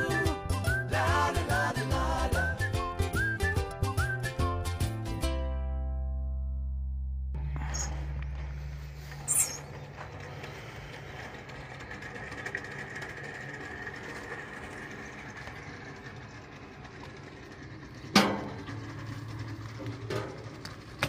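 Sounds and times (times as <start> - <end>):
plastic rollers rattling: 9.6 - 21.0.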